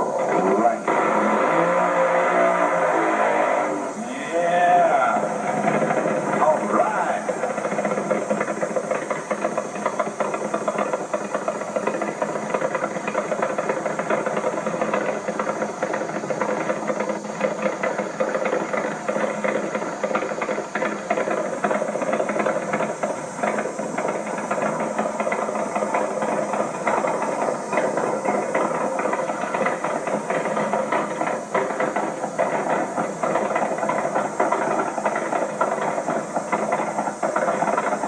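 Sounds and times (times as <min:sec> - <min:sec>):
motorcycle engine idling roughly: 0:00.0 - 0:38.0.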